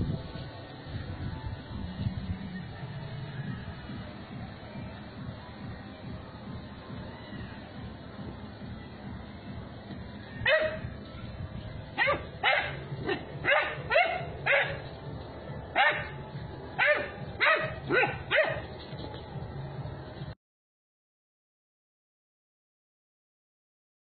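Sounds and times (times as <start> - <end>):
dog barking: 10.4 - 10.8, 12.0 - 14.8, 15.8 - 16.1, 16.8 - 18.6.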